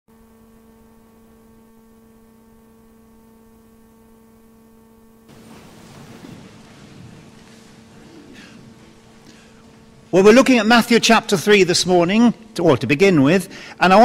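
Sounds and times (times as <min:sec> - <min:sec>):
electrical hum: 0:00.1 - 0:14.0
loud uneven noise: 0:05.3 - 0:12.5.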